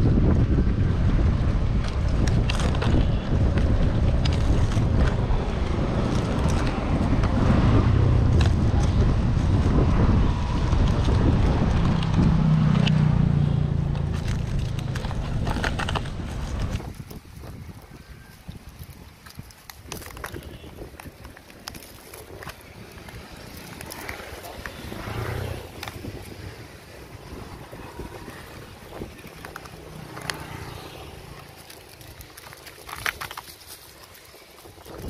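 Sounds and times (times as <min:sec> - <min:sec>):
wind buffeting microphone: 0:00.0 - 0:35.0
light clicks and crackles: 0:01.8 - 0:07.4, 0:13.8 - 0:35.0.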